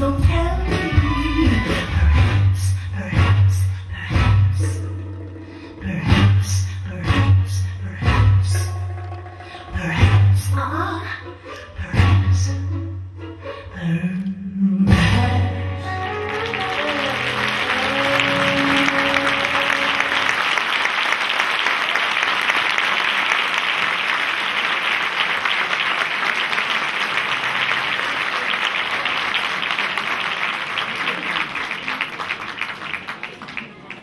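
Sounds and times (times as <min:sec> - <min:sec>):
audience applauding: 0:15.9 - 0:34.0.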